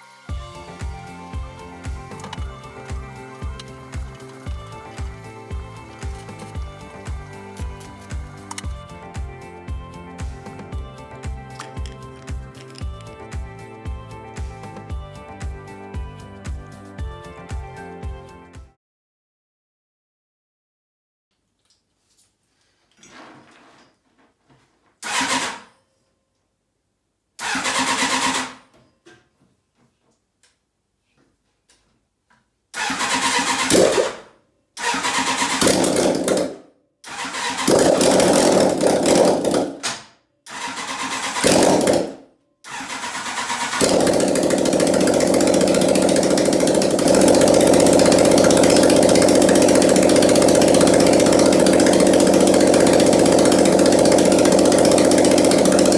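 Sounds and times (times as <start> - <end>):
engine cranking: 2.1 - 8.7, 25.0 - 25.7, 27.4 - 28.6, 32.8 - 34.2, 34.8 - 39.9, 40.5 - 42.1, 42.7 - 55.9
engine running steadily: 43.7 - 55.9.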